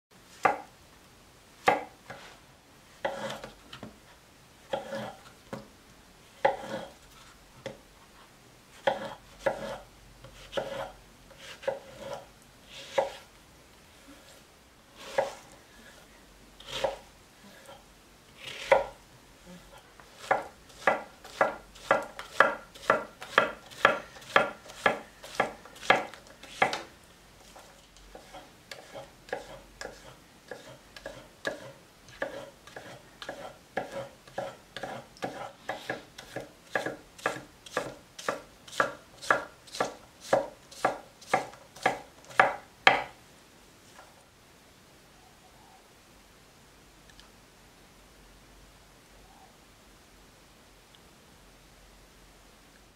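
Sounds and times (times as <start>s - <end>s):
knife slicing on wooden board: 3.0s - 3.5s, 8.8s - 9.8s, 10.4s - 13.3s, 15.0s - 15.5s, 27.5s - 43.0s.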